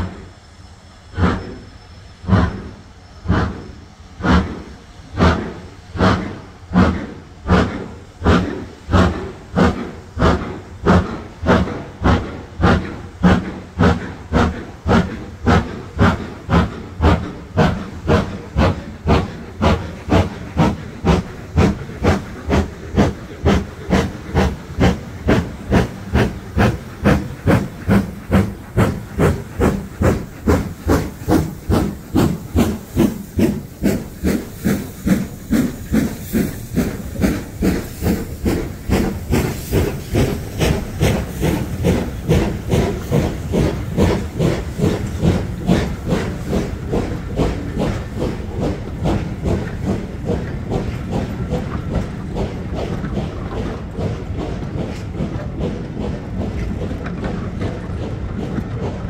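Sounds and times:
steam locomotive chuffing: 0.0s - 59.0s.

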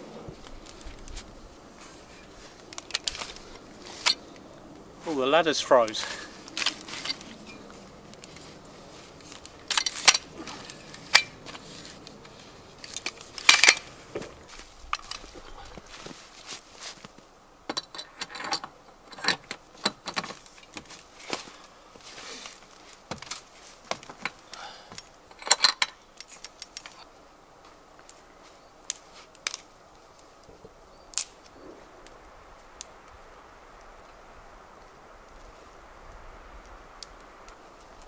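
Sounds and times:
metal ladder clicking and clanking: 9.7s - 11.6s, 12.8s - 13.9s, 17.7s - 20.9s.

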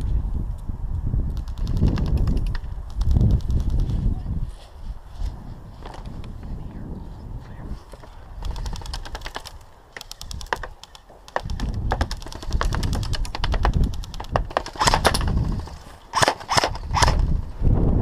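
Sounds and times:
airsoft rifle shots: 8.4s - 17.4s.

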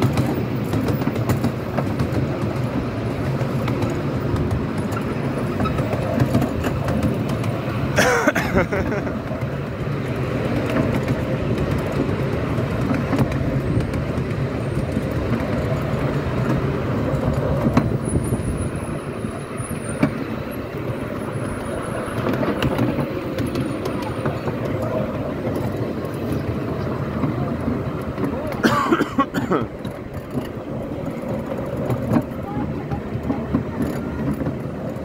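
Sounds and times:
miniature train wheels on rails: 0.0s - 35.0s.

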